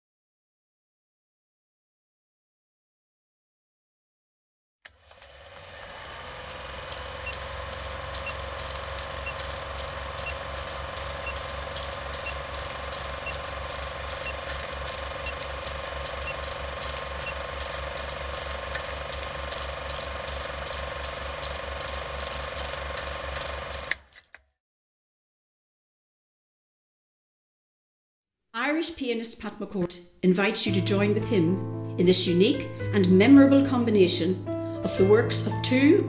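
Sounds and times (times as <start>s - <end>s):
projector motor hum: 4.9s - 24.1s
film projector clattering: 4.9s - 24.4s.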